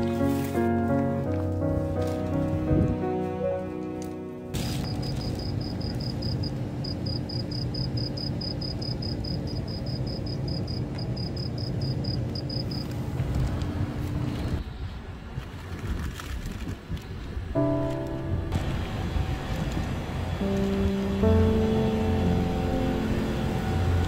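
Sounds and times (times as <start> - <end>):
cricket chirping: 4.7 - 12.9
low machine hum: 17.6 - 24.0.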